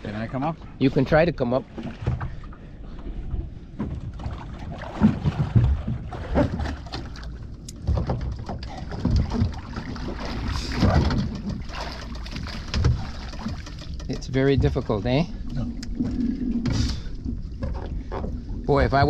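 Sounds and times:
water sloshing against boat hull: 0.0 - 19.0
heavy knocks and bumps: 3.8 - 7.0, 7.8 - 15.3.

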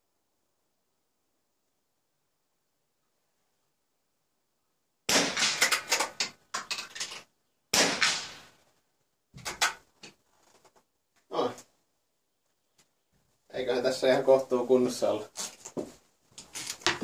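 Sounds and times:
rifle shots: 5.1 - 6.4, 7.7 - 8.6.

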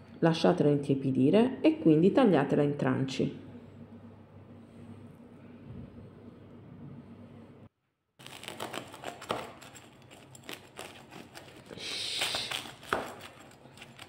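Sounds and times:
knife cutting crisp bread crust: 8.2 - 14.0.

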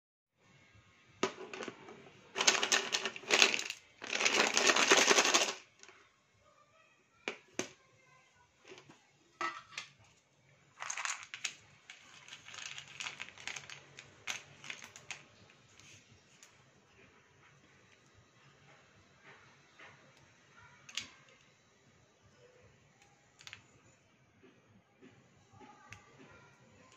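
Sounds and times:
pencils rattling in a bowl: 1.2 - 6.0, 10.8 - 16.6.

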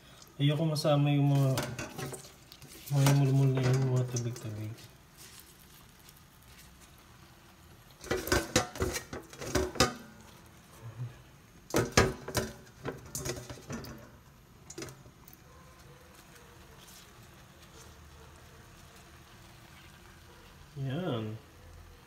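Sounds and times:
metal bowls clinking: 1.4 - 4.5, 8.0 - 10.3.

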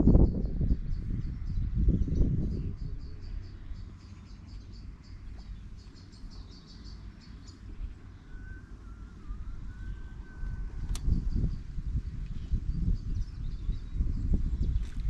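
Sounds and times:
low outdoor rumble: 0.0 - 15.0
faint wavering whistle: 6.1 - 11.8
small bird chirping: 9.3 - 15.0.

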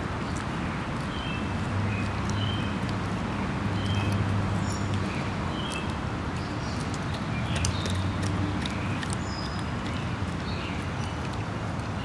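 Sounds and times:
dogs licking and smacking lips: 0.0 - 12.0
birds chirping: 3.7 - 12.0.

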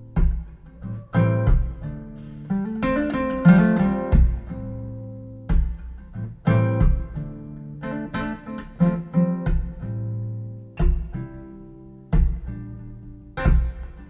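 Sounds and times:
acoustic guitar chords: 0.0 - 14.0.

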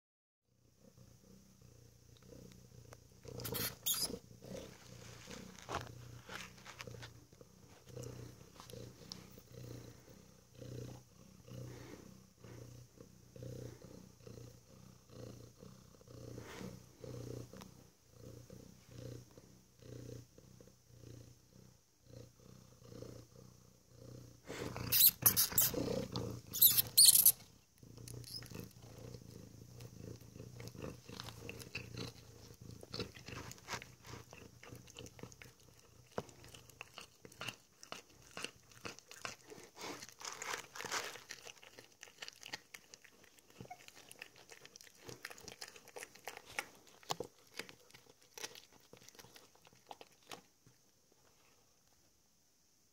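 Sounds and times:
cat chewing and crunching: 2.2 - 10.2, 24.5 - 51.6.

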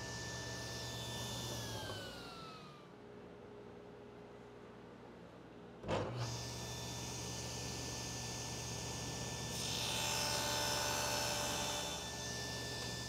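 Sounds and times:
table saw motor hum: 0.0 - 2.9, 6.1 - 13.0.

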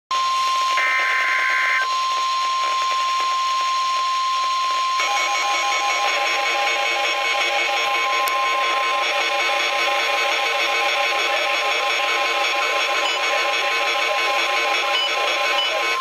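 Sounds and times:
steady high alarm tone: 0.2 - 16.0
radio static: 0.7 - 16.0
pulsing beeps: 4.6 - 16.0.

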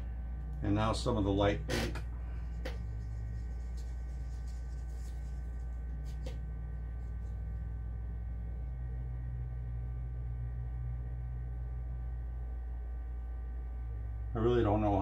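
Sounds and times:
low hum: 0.0 - 15.0
stir stick scraping in paper cup: 2.3 - 7.5.

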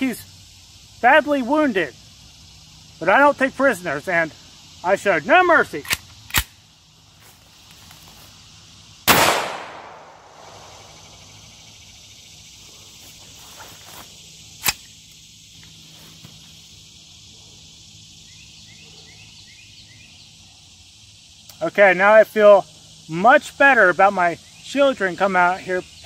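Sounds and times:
insects buzzing: 0.0 - 26.0
pistol shot: 9.1 - 10.6.

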